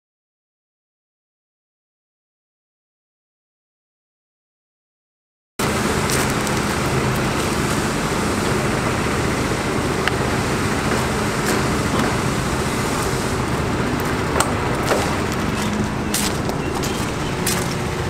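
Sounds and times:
diesel engine idling: 0:05.6 - 0:18.0.

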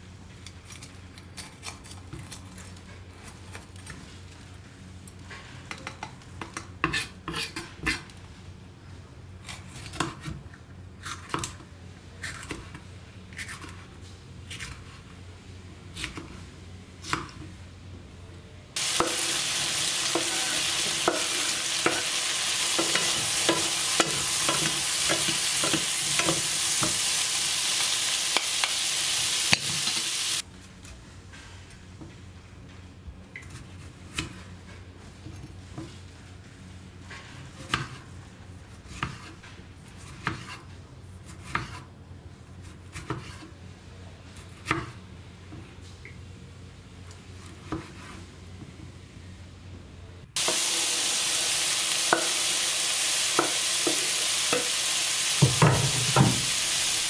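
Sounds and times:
vegetables sizzling in a pan: 0:18.8 - 0:30.4, 0:50.4 - 0:57.0.

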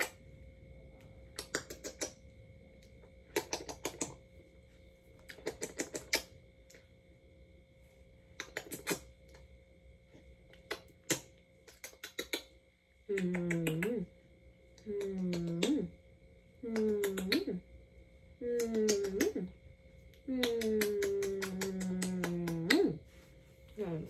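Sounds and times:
smacking kisses: 0:01.3 - 0:02.2, 0:03.2 - 0:04.2, 0:05.2 - 0:06.4, 0:08.4 - 0:09.4, 0:10.5 - 0:14.0, 0:14.8 - 0:15.9, 0:16.6 - 0:17.6, 0:18.4 - 0:19.5, 0:20.1 - 0:23.0
person humming: 0:13.1 - 0:14.1, 0:14.8 - 0:15.9, 0:16.6 - 0:17.6, 0:18.4 - 0:19.5, 0:20.3 - 0:23.0.

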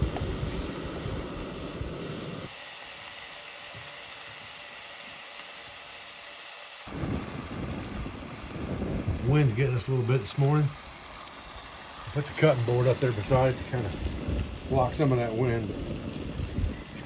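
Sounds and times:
wind rumble on microphone: 0:00.0 - 0:02.5, 0:06.9 - 0:10.8, 0:12.9 - 0:17.0
bacon sizzling in a skillet: 0:00.0 - 0:17.0.

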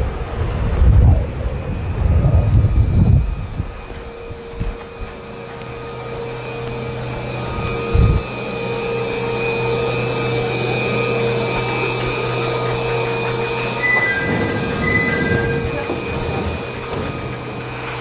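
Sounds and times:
low rumbling: 0:00.0 - 0:18.0
train equipment hum with whine: 0:00.0 - 0:18.0
two-note high chime: 0:04.2 - 0:18.0.

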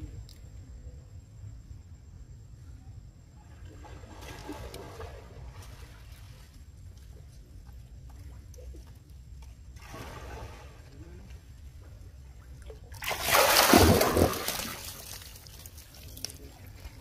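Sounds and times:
faint lapping water: 0:02.6 - 0:17.0
soft water slosh: 0:03.4 - 0:17.0
loud splash: 0:09.8 - 0:10.8, 0:12.9 - 0:15.4.

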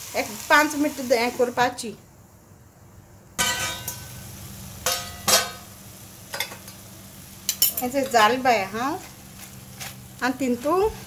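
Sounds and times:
prawns sizzling in a pan: 0:00.0 - 0:02.0, 0:03.4 - 0:11.0
metal spoon clinking and scraping: 0:07.5 - 0:08.4.

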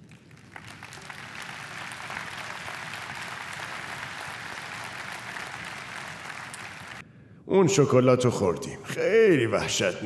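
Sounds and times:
large audience applauding: 0:00.0 - 0:07.0.

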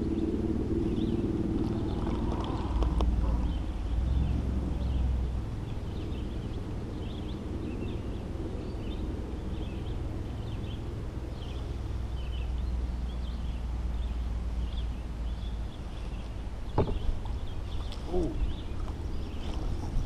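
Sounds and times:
small birds chirping: 0:00.0 - 0:20.0
steady low rumble: 0:00.0 - 0:20.0.

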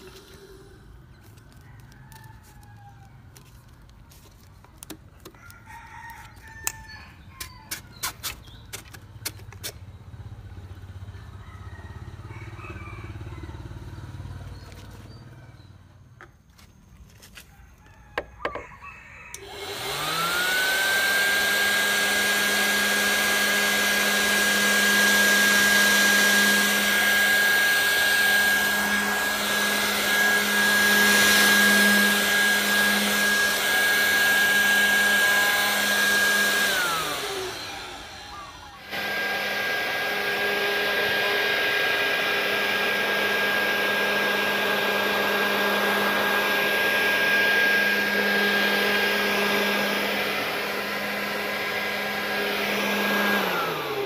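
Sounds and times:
vacuum cleaner motor whine: 0:19.3 - 0:54.0.

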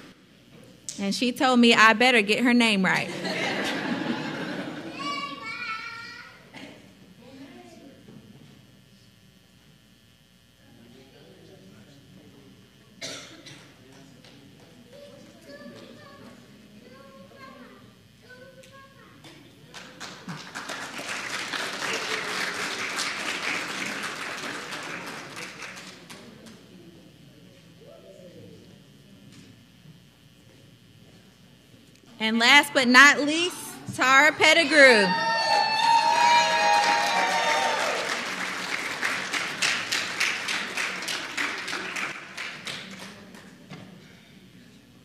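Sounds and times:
audience applauding: 0:19.8 - 0:26.3, 0:35.2 - 0:43.6.

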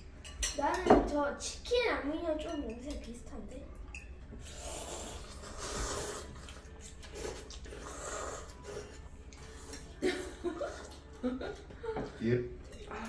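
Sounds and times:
people slurping noodles: 0:04.4 - 0:11.0.

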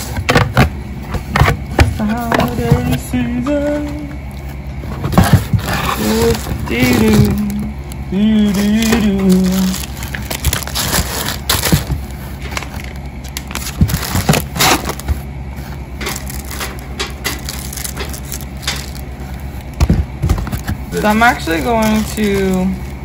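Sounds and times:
packing materials crackling: 0:00.0 - 0:23.0
woman's voice: 0:20.9 - 0:22.8.

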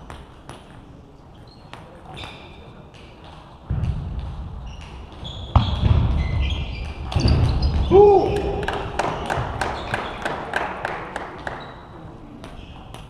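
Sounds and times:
shoe squeaks: 0:01.3 - 0:02.8, 0:04.6 - 0:08.3, 0:09.1 - 0:10.2, 0:11.6 - 0:13.0.

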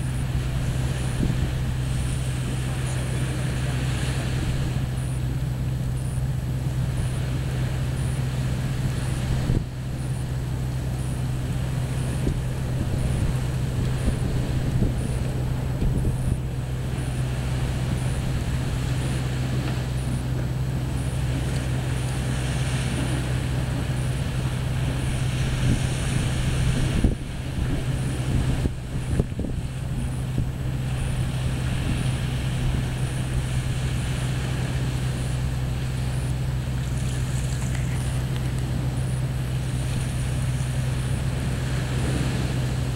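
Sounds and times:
wind buffeting microphone: 0:00.0 - 0:42.9
small waves breaking on sand: 0:20.9 - 0:42.9.

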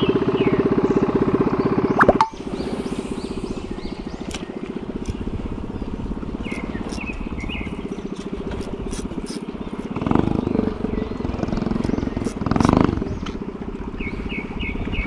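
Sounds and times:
short high chirps: 0:02.0 - 0:02.5
boat engine chugging: 0:02.4 - 0:15.0.

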